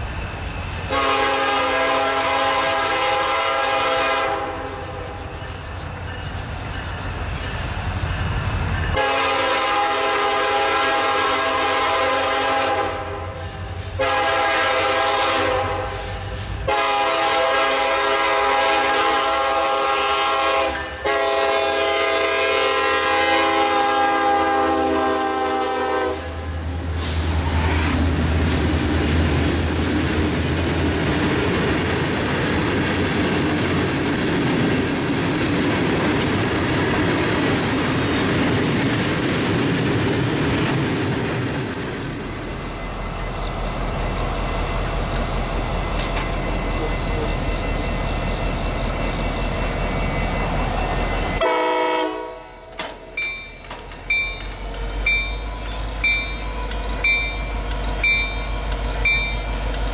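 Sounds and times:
locomotive air horn blasts: 0.9s - 5.1s, 9.0s - 26.5s, 51.4s - 52.7s
locomotive engine rumble: 23.9s - 59.9s
train wheels clacking on rails: 25.0s - 59.9s.

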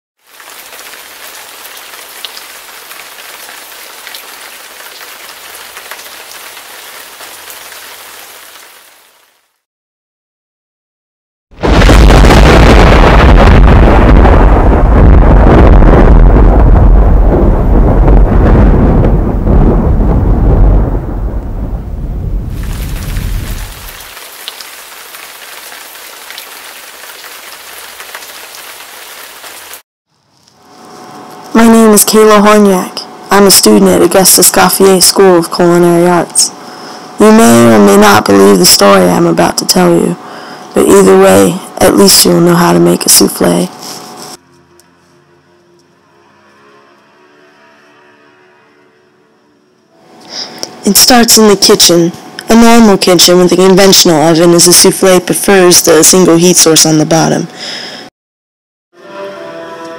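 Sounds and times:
steady rain falling: 0.2s - 9.6s, 22.5s - 29.8s
thunder rumble: 11.6s - 24.2s.

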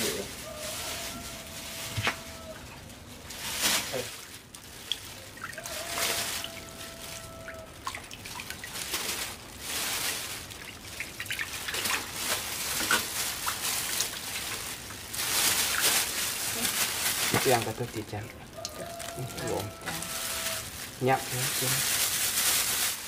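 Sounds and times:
water splashing and trickling: 0.0s - 23.0s.

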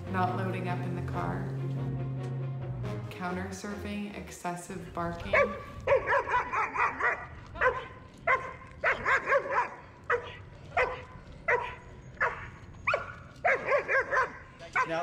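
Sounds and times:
dog barking: 5.3s - 15.0s.

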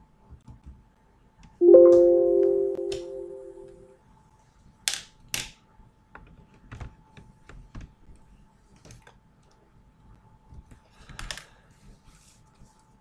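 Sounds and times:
ringing chime: 1.6s - 3.8s.

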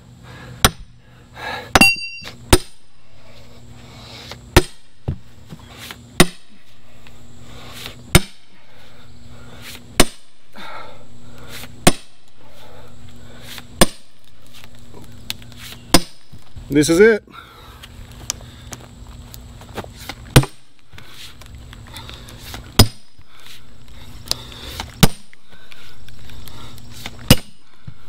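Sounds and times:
maul striking steel wedge: 0.6s - 0.9s, 1.8s - 2.8s, 4.6s - 4.9s, 6.2s - 6.6s, 8.1s - 8.5s, 10.0s - 10.3s, 11.8s - 12.2s, 13.8s - 14.1s, 15.9s - 16.3s, 20.3s - 20.6s, 22.8s - 23.1s, 25.0s - 25.3s, 27.3s - 27.6s.

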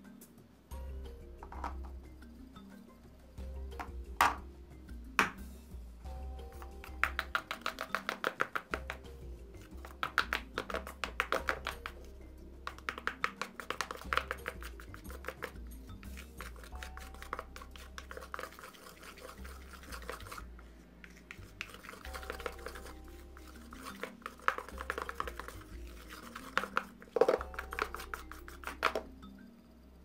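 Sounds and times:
plastic stick scraping a bowl: 6.6s - 12.1s, 12.7s - 29.1s.

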